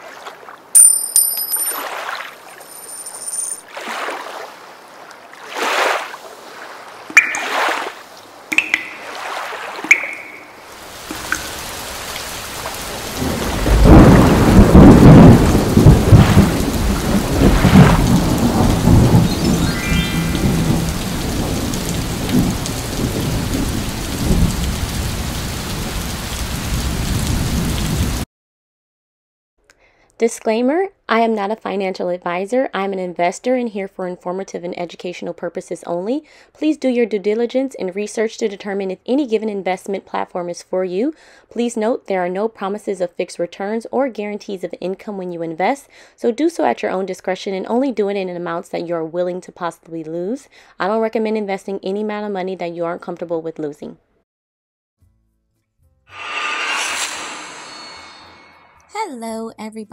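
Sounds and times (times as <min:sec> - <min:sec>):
heavy rain: 0:10.6 - 0:28.2
thunder rumble: 0:12.5 - 0:25.9
whooshing sweeps with tones: 0:56.1 - 0:58.9.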